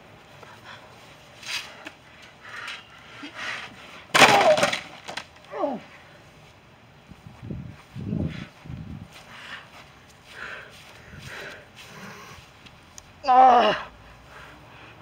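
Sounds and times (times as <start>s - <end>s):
loud crash: 4.1s - 5.1s
person yelling: 5.5s - 5.9s, 13.2s - 13.9s.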